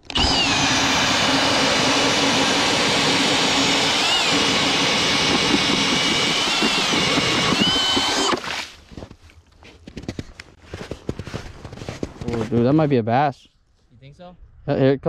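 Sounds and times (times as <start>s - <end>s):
motor whining at high speed: 0.0s - 8.4s.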